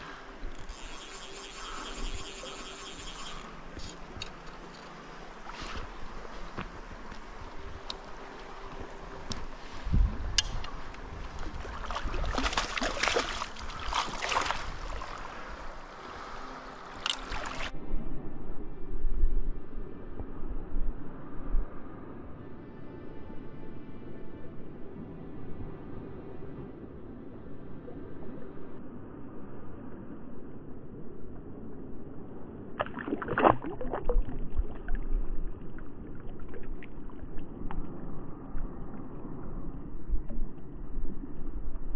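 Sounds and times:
stream water splashing: 10.8 - 17.8, 32.8 - 38.1
fish splashing in water: 11.7 - 15.2
low rumble: 17.4 - 41.9.

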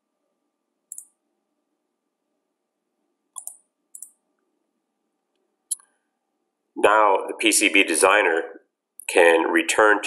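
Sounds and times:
computer mouse clicks: 0.9 - 1.2, 3.4 - 4.2.

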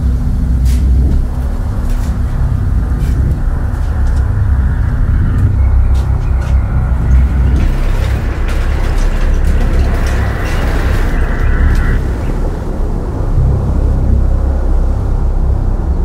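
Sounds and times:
low rumble: 0.0 - 16.0
garage door rattling and rolling: 5.7 - 13.1.

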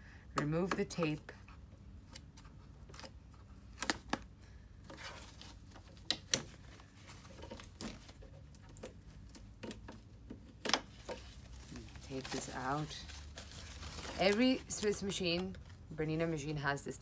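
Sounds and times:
foam sheet crinkling: 11.1 - 15.6.

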